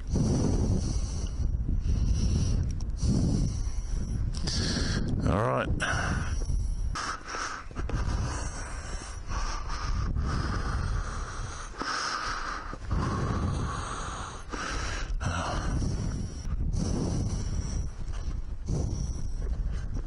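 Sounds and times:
low rumble: 0:00.0 - 0:07.0, 0:12.7 - 0:20.0
person breathing heavily: 0:00.0 - 0:20.0.

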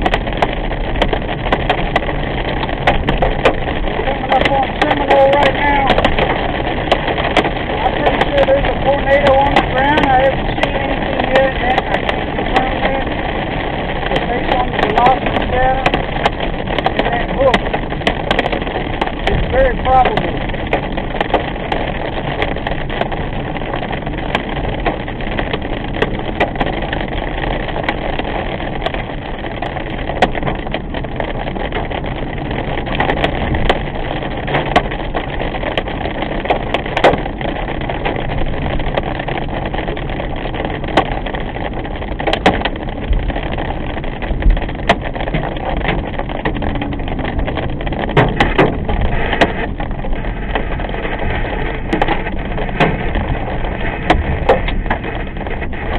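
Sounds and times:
raindrops ticking on windshield: 0:00.0 - 0:55.9
tyres on wet pavement: 0:00.0 - 0:55.9.

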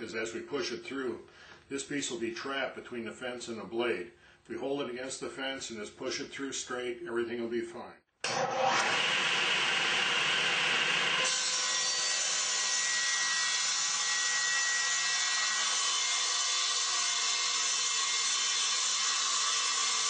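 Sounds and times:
table saw cutting board: 0:08.2 - 0:20.0
saw running with steady whine: 0:08.3 - 0:20.0.

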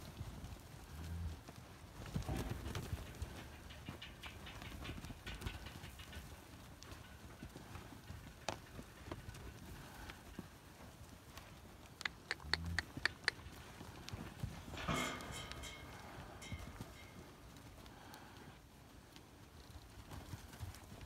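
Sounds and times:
hooves shuffling on dirt: 0:00.0 - 0:21.0
sharp clicks: 0:12.0 - 0:13.4.

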